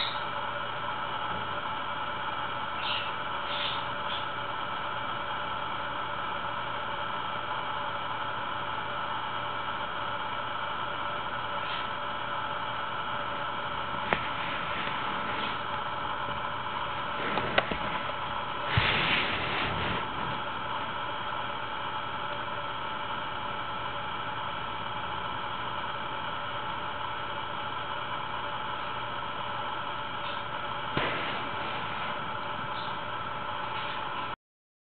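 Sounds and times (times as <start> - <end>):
faint constant hum: 0.0 - 34.4
steady hiss: 29.9 - 34.3.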